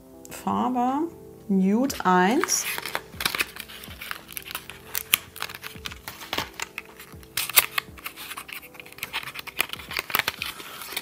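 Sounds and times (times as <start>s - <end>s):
quiet background music: 0.0s - 11.0s
plastic packaging clicks and taps: 2.6s - 11.0s.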